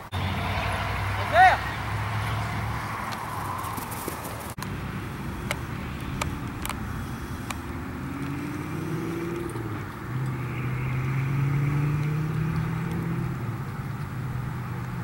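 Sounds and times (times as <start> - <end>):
vehicle engine humming: 0.0 - 15.0
sharp clicks: 5.4 - 6.8, 7.4 - 7.6.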